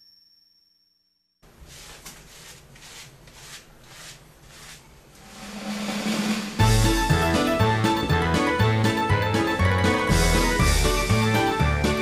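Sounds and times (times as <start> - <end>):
scratchy shaker-like percussion pulse: 5.3 - 7.1
background music: 5.7 - 12.0.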